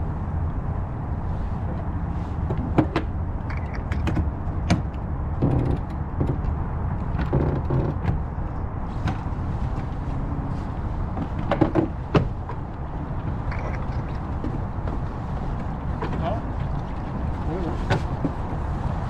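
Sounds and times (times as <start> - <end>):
sailboat low rumble: 0.0 - 19.0
knocks and clicks of boat gear: 2.4 - 8.3, 11.1 - 18.7.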